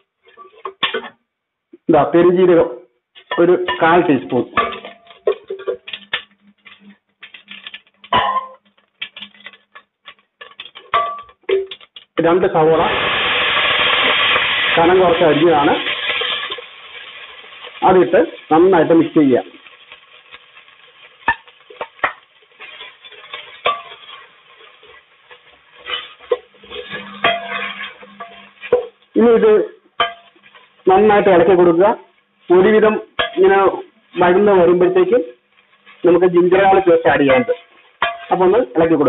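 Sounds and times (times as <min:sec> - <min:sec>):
onions sizzling in oil: 0:00.0 - 0:01.0, 0:03.2 - 0:39.0
spoon stirring spices in pot: 0:00.0 - 0:01.2, 0:03.1 - 0:12.5, 0:19.6 - 0:39.0
spatula scraping pot: 0:25.8 - 0:29.0.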